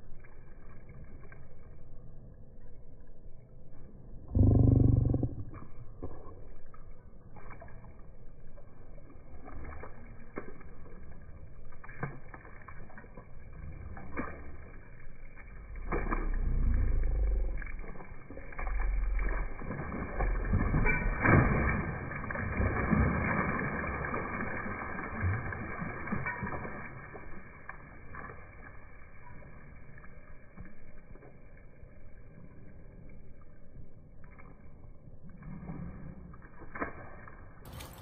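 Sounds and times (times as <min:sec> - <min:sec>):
pool water splashing: 0:00.0 - 0:38.0.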